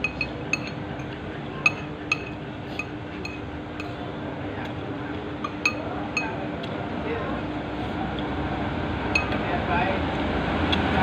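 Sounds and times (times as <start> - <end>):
cutlery clinking against ceramic bowl: 0.0 - 4.0, 5.4 - 6.4, 9.2 - 9.4.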